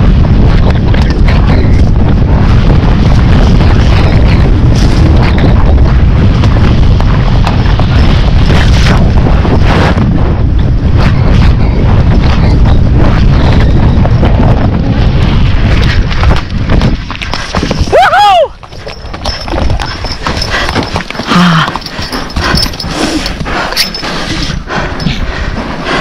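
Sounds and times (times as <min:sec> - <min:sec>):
horse hoofbeats: 0:00.0 - 0:26.0
wind buffeting microphone: 0:00.0 - 0:26.0
gear knocking: 0:18.6 - 0:24.1.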